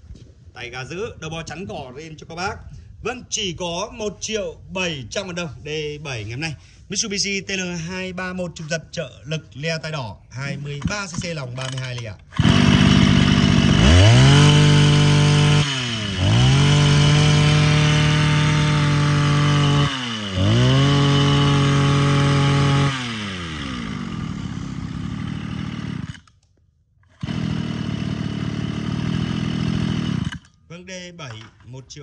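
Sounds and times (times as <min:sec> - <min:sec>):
brush-cutter engine revving and idling: 0:11.1 - 0:26.4, 0:27.1 - 0:30.6.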